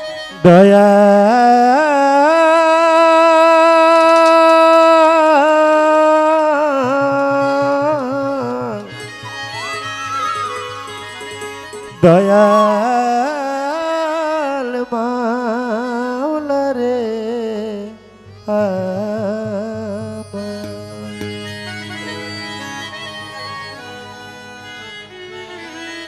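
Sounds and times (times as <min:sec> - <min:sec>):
violin folk melody: 0:00.0 - 0:01.5, 0:06.7 - 0:14.4, 0:18.1 - 0:26.0.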